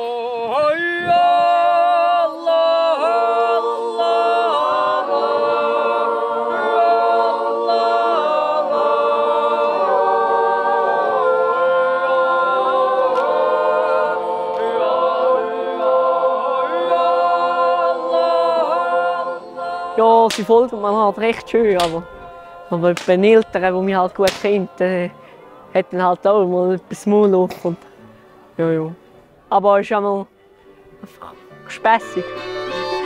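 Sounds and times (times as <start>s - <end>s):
group singing without words: 0.0s - 26.1s.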